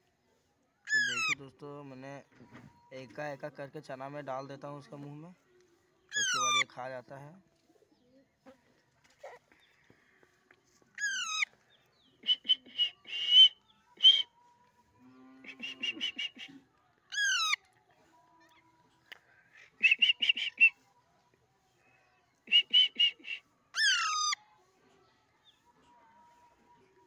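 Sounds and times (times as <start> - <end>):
parakeet harsh calls: 0.9 - 1.4, 11.0 - 11.5, 17.1 - 17.6, 23.8 - 24.4.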